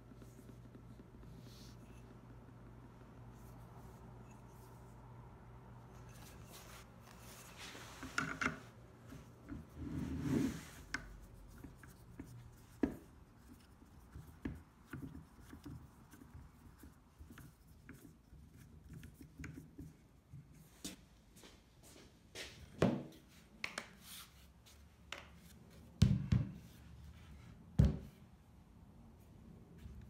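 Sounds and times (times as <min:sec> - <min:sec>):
wooden handle rubbing and scraping: 0:00.0 - 0:19.9.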